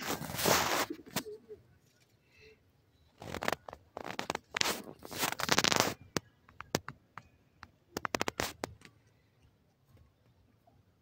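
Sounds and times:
bird scratching in dry soil: 0:00.0 - 0:01.3, 0:03.2 - 0:06.2.

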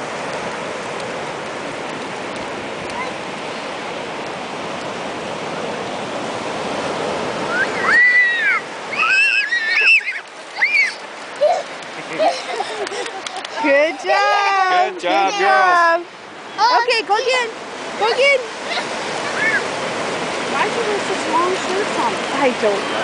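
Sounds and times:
ocean surf breaking: 0:00.0 - 0:23.0
girls squealing: 0:07.5 - 0:11.7, 0:18.7 - 0:19.7.

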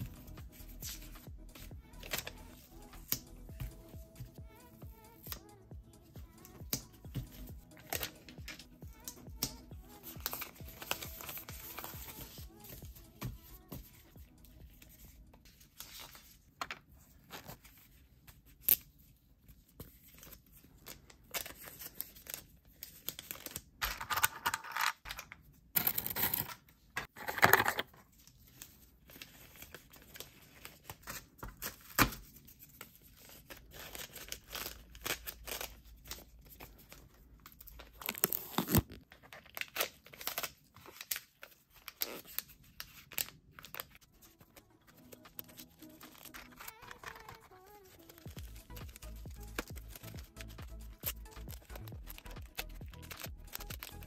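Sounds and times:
plastic pouches crinkling: 0:25.8 - 0:54.0.

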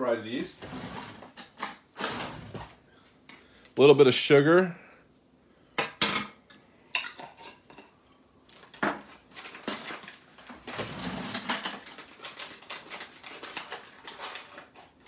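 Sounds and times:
utensils clattering: 0:00.6 - 0:02.8, 0:09.4 - 0:14.8.

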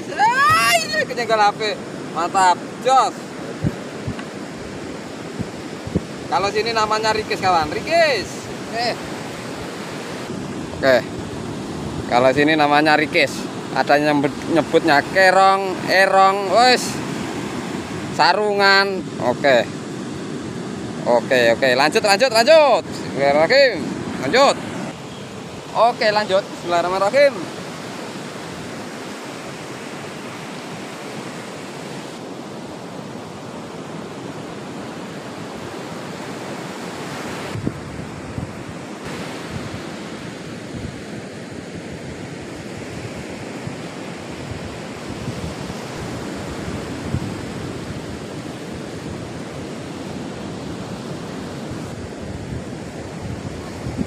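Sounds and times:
surf breaking on a beach: 0:00.0 - 0:54.0.

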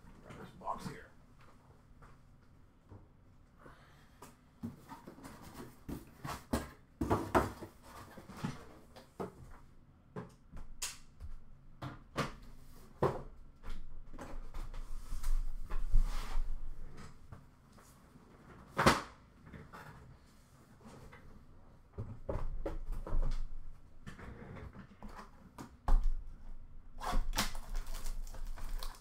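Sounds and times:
cardboard boxes knocking: 0:04.7 - 0:07.9.

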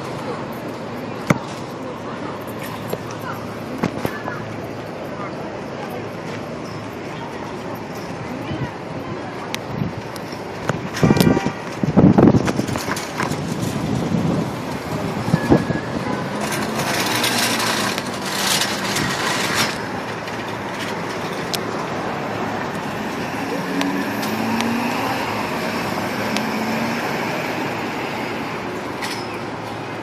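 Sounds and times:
city traffic noise: 0:00.0 - 0:30.0
truck engine droning: 0:11.0 - 0:30.0.

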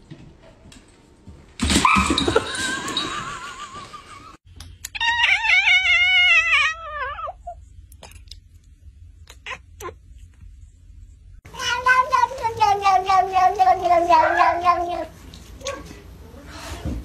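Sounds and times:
cat meowing: 0:11.6 - 0:15.9.

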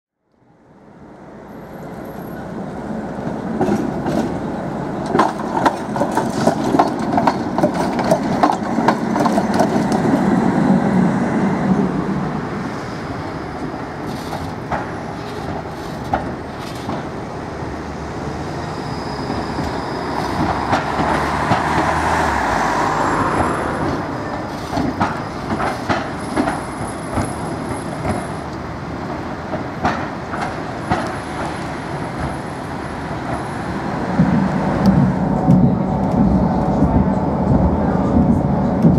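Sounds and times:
tram wheels rumbling on rails: 0:00.5 - 0:38.9
wheels clicking over rail joints: 0:05.0 - 0:10.3, 0:13.6 - 0:17.2, 0:19.6 - 0:22.0, 0:23.2 - 0:33.5.

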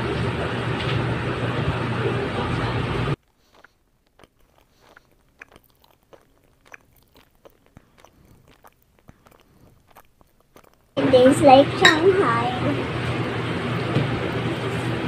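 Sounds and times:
chewing and crunching: 0:03.2 - 0:11.0.

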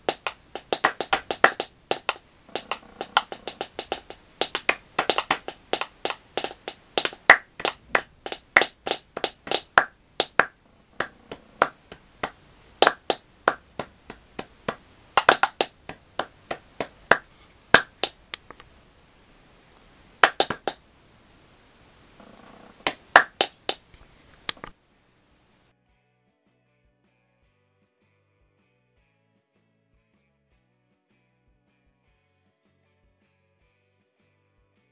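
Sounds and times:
finger snaps: 0:00.0 - 0:18.7, 0:20.2 - 0:20.8
hand claps: 0:00.0 - 0:18.7, 0:20.2 - 0:20.8, 0:22.8 - 0:24.7.

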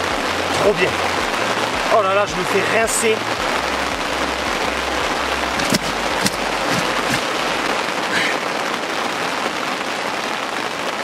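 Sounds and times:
heavy rain falling: 0:00.0 - 0:11.0
sharp knocks: 0:05.6 - 0:07.3.

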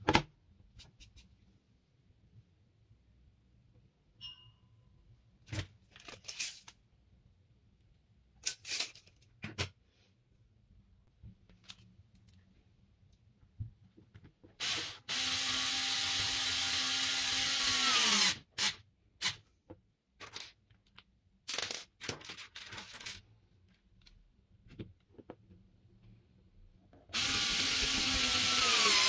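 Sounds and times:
clicks of parts being handled: 0:08.4 - 0:09.8
power tool motor running: 0:14.6 - 0:18.4, 0:27.2 - 0:29.0.

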